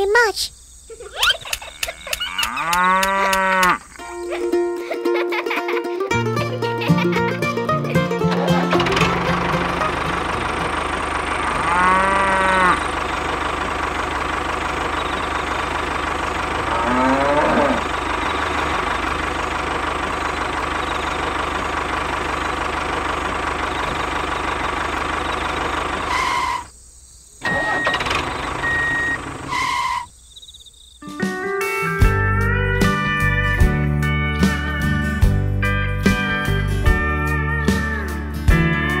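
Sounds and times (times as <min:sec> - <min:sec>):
tractor engine running: 0:01.2 - 0:05.0, 0:06.1 - 0:26.8, 0:27.4 - 0:30.6
cow mooing: 0:01.8 - 0:03.9, 0:11.4 - 0:13.0, 0:16.6 - 0:18.0.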